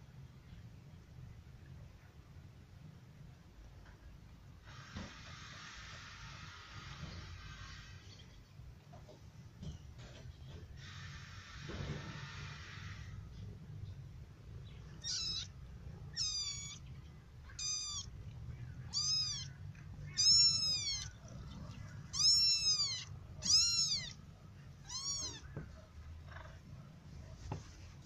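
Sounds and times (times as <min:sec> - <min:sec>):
kitten mewing: 0:14.9 - 0:25.7.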